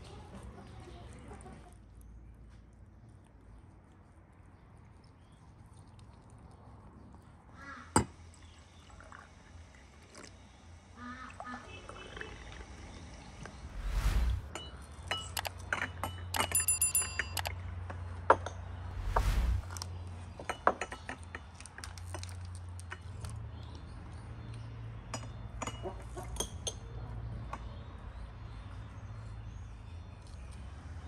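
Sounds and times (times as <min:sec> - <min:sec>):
low rumbles: 0:13.5 - 0:14.6, 0:18.8 - 0:19.8
glasses and teaspoons clinking: 0:16.1 - 0:17.5.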